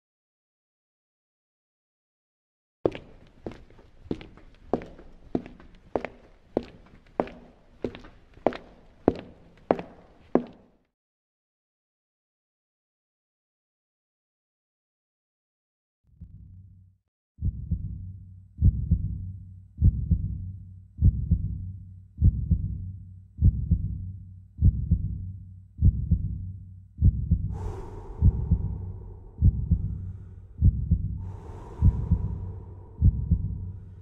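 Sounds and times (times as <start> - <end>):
heartbeat thumps: 17.4 - 26.4, 27.0 - 34.0.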